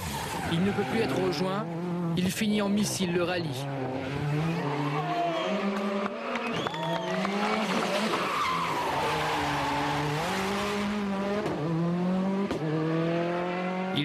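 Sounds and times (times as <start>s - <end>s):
rally car engine revving: 0.0s - 14.0s.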